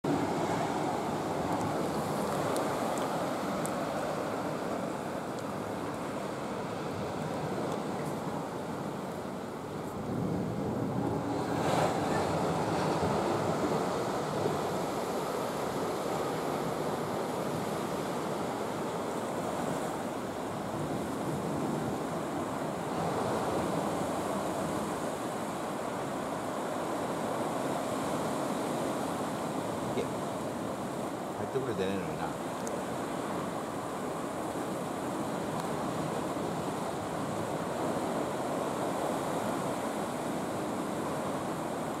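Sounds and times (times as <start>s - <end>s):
wind on microphone: 0.0s - 31.3s
sea surf breaking on rocks: 0.1s - 42.0s.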